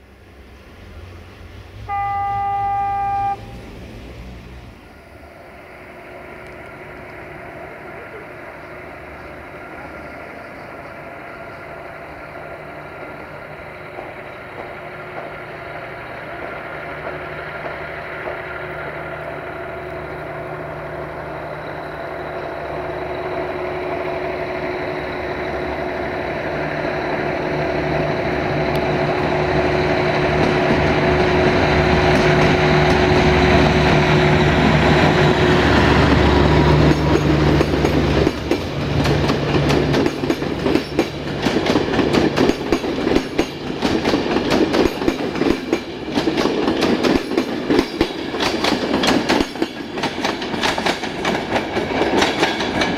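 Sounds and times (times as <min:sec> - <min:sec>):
locomotive engine whining: 0:00.2 - 0:44.4
wheels clattering over rail joints: 0:35.8 - 0:52.9.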